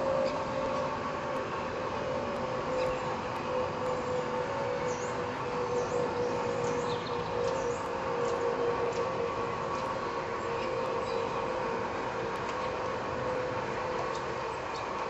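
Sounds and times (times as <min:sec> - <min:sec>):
awning electric motor humming: 0:00.0 - 0:15.0.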